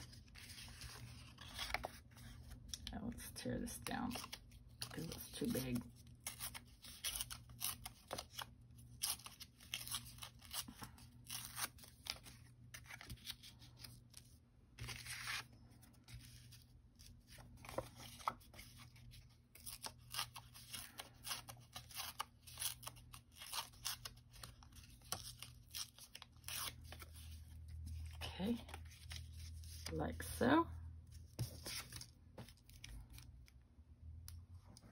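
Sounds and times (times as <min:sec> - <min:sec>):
paper rustling: 0:00.0 - 0:02.8, 0:09.1 - 0:23.0, 0:31.2 - 0:33.2.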